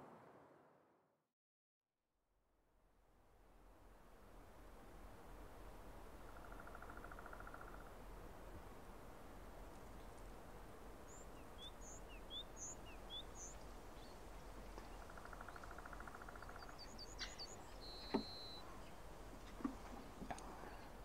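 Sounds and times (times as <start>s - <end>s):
faint steady hiss: 2.8s - 21.0s
small birds chirping: 11.0s - 21.0s.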